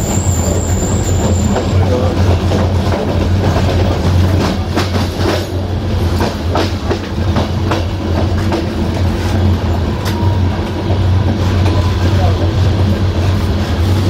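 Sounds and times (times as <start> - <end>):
low train rumble: 0.0 - 14.0
train wheels clacking over rail joints: 0.0 - 14.0.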